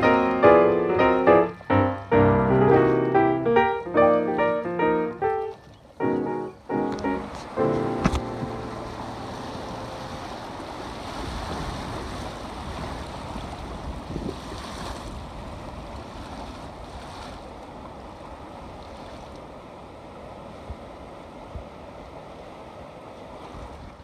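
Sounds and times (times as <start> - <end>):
river rapids rushing: 0.0 - 12.8
wind buffeting microphone: 6.6 - 18.5.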